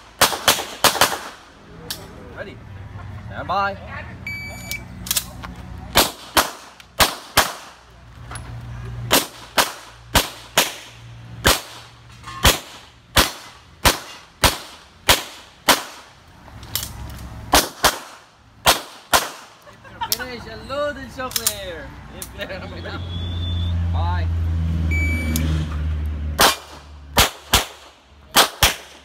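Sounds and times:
loud sharp gunshots: 0:00.0 - 0:01.4, 0:06.0 - 0:07.8, 0:09.1 - 0:16.1, 0:17.5 - 0:19.6, 0:26.4 - 0:29.0.

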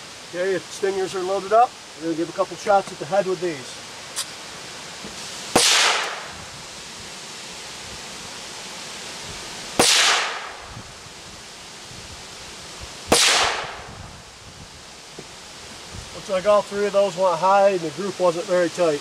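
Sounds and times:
pistol shots with echo: 0:05.6 - 0:06.3, 0:09.8 - 0:10.6, 0:13.1 - 0:13.8.

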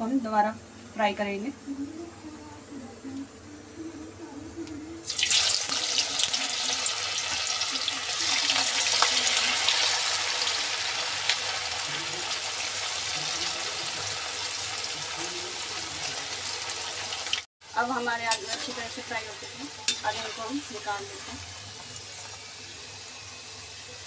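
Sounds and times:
potatoes deep-frying in oil: 0:05.0 - 0:24.0.

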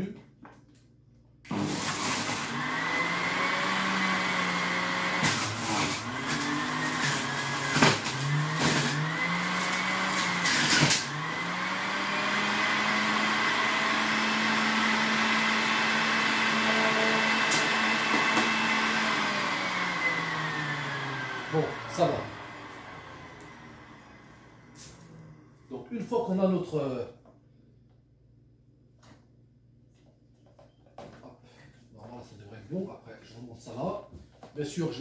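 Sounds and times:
electric juicer motor hum: 0:01.5 - 0:25.6.

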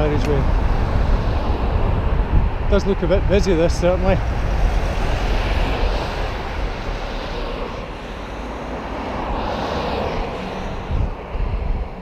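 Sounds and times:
motor vehicle passing: 0:00.0 - 0:12.0
wind noise on microphone: 0:00.0 - 0:12.0.

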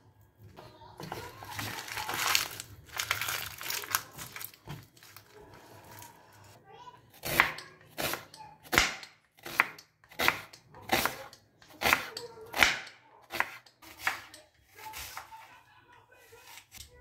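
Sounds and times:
knife slicing onion: 0:07.1 - 0:15.5.

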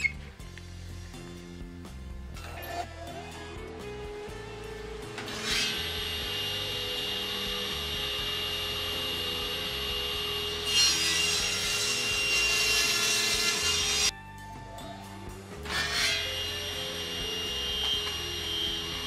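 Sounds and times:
table saw running hum: 0:04.4 - 0:14.1, 0:15.7 - 0:19.0
table saw cutting wood: 0:04.6 - 0:14.1, 0:15.6 - 0:19.0.

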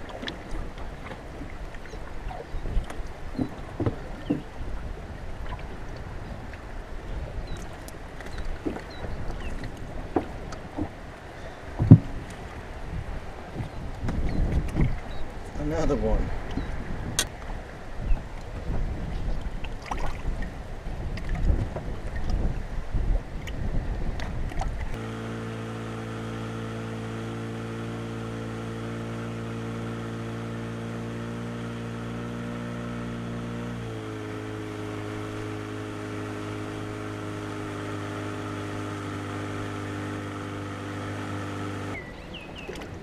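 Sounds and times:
water splashing: 0:00.0 - 0:06.9, 0:18.4 - 0:22.4, 0:24.3 - 0:43.0
wind noise: 0:00.0 - 0:25.0
outboard motor running: 0:00.0 - 0:43.0.

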